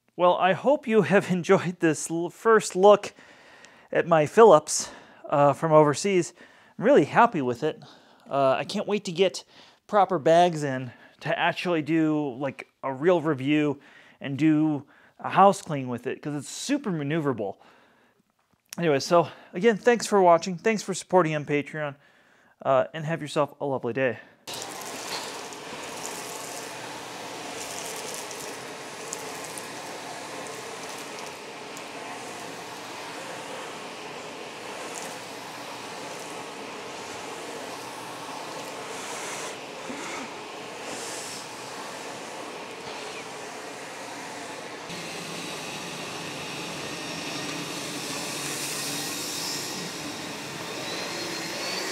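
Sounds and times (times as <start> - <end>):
vacuum cleaner running: 24.5 - 51.9.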